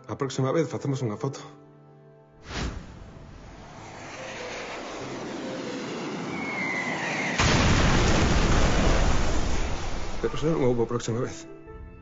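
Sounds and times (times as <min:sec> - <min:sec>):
rushing noise: 0:02.4 - 0:10.9
falling whistle: 0:04.2 - 0:07.8
loud explosion blast: 0:06.8 - 0:10.8.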